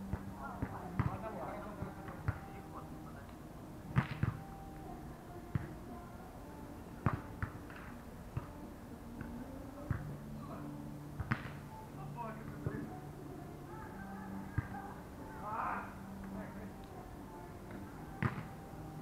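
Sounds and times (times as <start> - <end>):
hands slapping volleyball: 4.0 - 4.4, 7.0 - 8.5, 11.2 - 11.6, 17.7 - 18.5.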